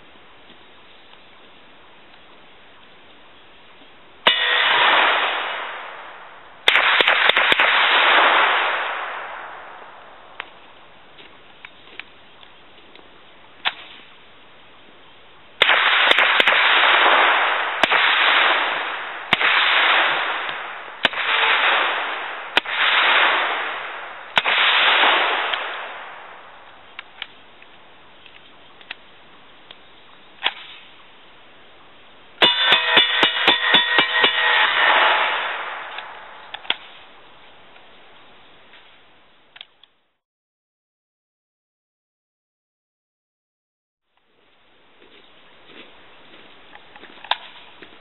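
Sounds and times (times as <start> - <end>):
suppressed rifle shots with echo: 4.3 - 10.3, 15.6 - 26.6, 32.4 - 37.2.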